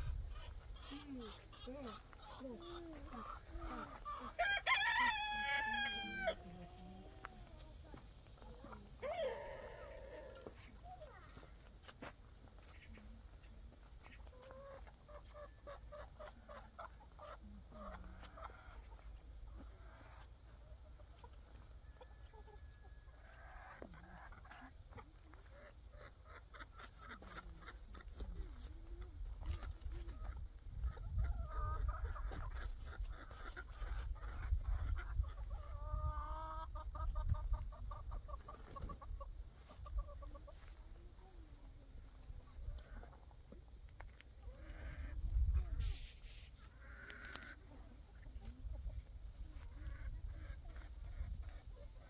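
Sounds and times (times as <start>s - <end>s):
chicken clucking: 0.0s - 52.0s.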